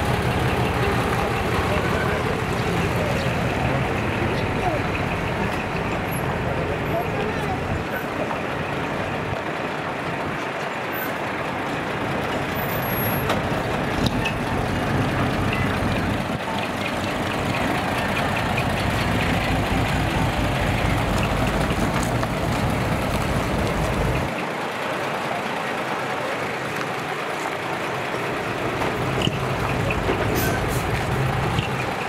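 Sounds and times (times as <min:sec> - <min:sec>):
diesel truck engine idling: 0:00.0 - 0:32.0
outdoor crowd noise: 0:00.0 - 0:32.0.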